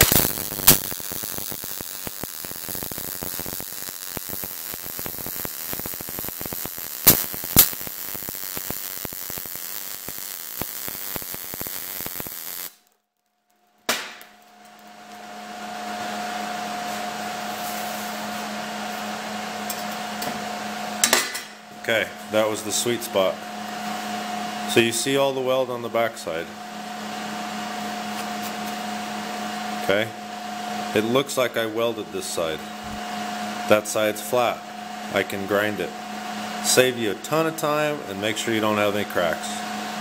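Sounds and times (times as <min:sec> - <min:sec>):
welding arc pops: 0:00.0 - 0:13.0, 0:13.8 - 0:14.6
welding arc crackling: 0:00.0 - 0:15.1.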